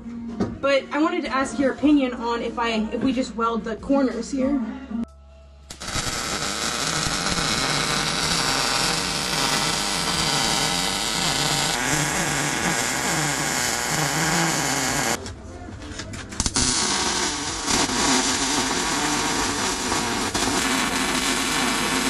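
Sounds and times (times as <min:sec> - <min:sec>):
welder arc crackling and hissing: 0:05.7 - 0:15.2, 0:16.4 - 0:22.0.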